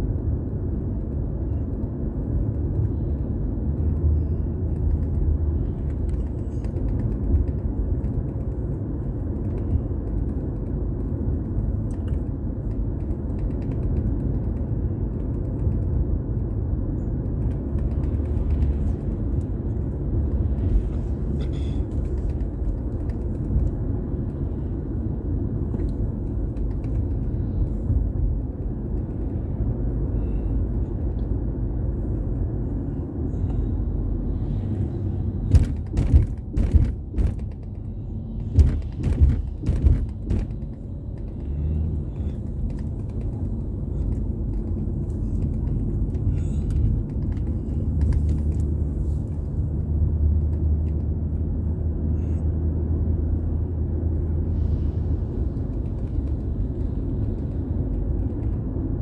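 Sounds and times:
car engine and road rumble: 0.0s - 59.0s
sharp knocks and thumps: 35.3s - 48.4s.

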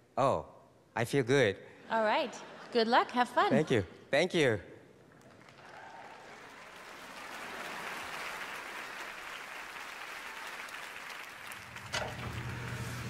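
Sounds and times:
audience applauding: 5.1s - 13.0s.

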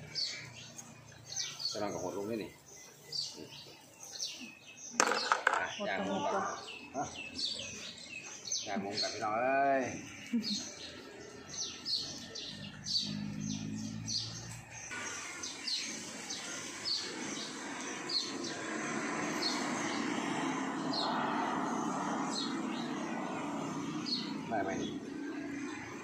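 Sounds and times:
small bird chirping: 0.0s - 18.8s.

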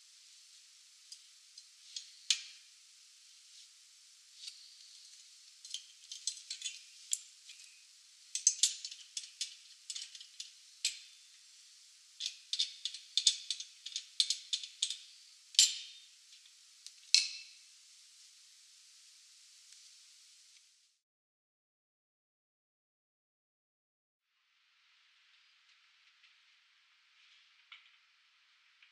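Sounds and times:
metallic clicks and clinks: 5.6s - 7.7s, 8.4s - 11.1s, 12.2s - 16.0s.

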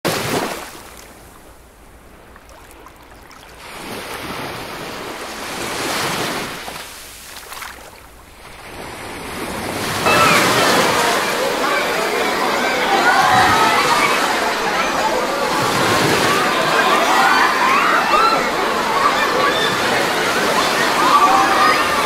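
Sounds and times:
sea waves washing: 0.1s - 22.0s.

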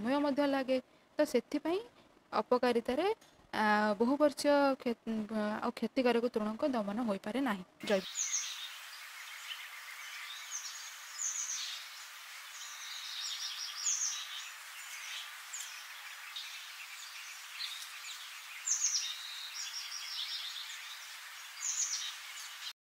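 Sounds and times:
steady hiss: 7.8s - 22.7s.

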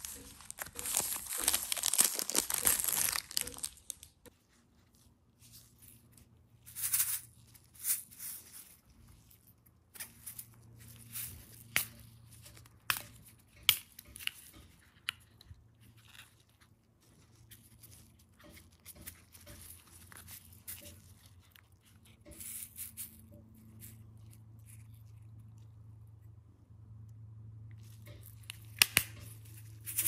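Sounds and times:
low steady hum: 0.0s - 13.5s, 19.6s - 30.0s.

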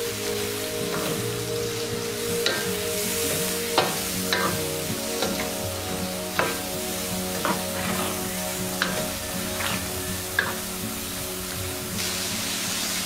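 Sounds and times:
food sizzling: 0.0s - 13.0s
wooden spatula scraping pot: 6.3s - 10.8s.

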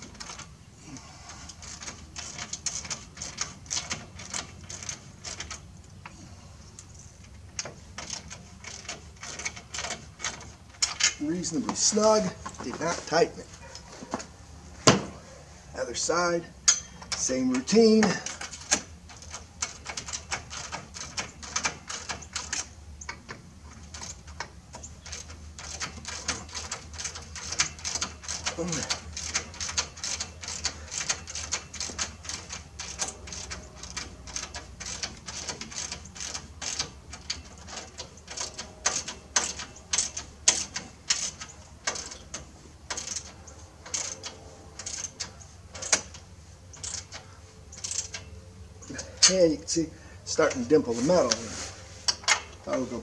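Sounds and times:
socket wrench ratcheting: 6.8s - 11.2s, 16.7s - 48.3s
metal clinks: 16.6s - 20.6s.

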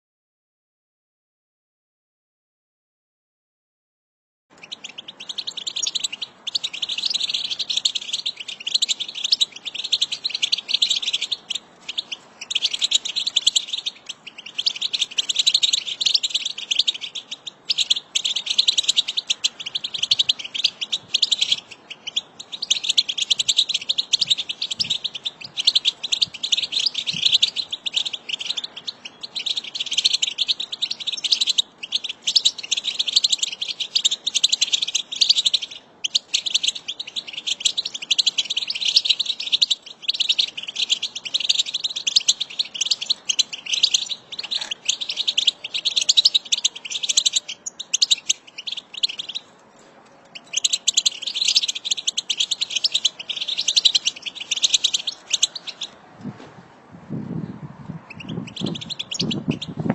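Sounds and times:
goldfinches twittering: 4.6s - 49.5s, 50.3s - 56.0s, 58.1s - 59.9s.

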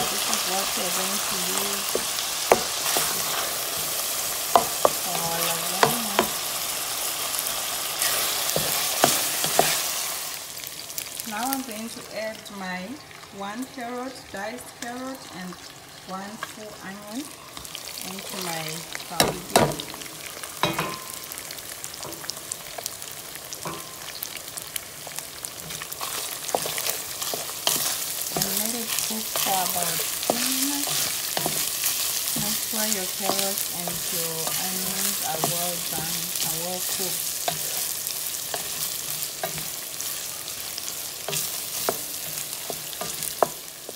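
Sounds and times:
meat sizzling in a pan: 0.0s - 43.9s
wooden spatula knocking a pan: 4.5s - 6.4s.

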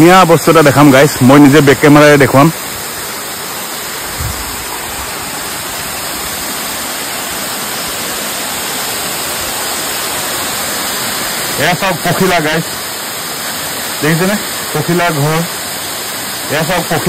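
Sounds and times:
waterfall rushing: 0.0s - 17.0s
brief low thump: 4.2s - 4.6s.

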